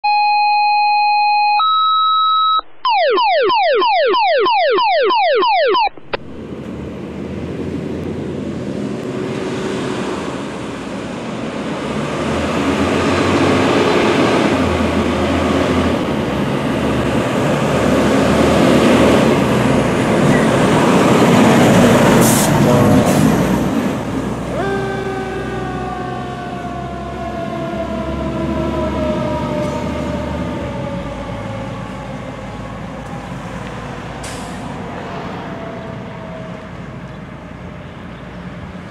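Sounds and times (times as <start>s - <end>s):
electronic beeps: 0.0s - 6.2s
falling electronic chirps: 0.0s - 6.2s
fire engine siren: 1.1s - 6.0s, 11.2s - 38.1s
fire engine engine: 6.1s - 38.9s.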